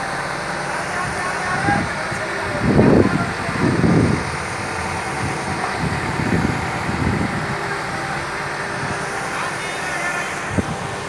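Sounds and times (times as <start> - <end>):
diesel engine running: 0.0 - 11.0.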